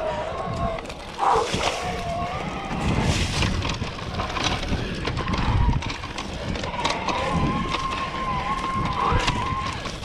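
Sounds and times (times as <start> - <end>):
bike rattling over bumps: 0.0 - 10.0
tyres rumbling on dirt trail: 0.0 - 10.0
electric bike motor whining: 2.4 - 10.0.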